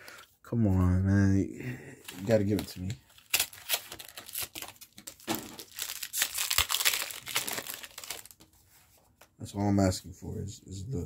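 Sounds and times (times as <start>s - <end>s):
foil wrapper crinkling and tearing: 2.0s - 8.5s.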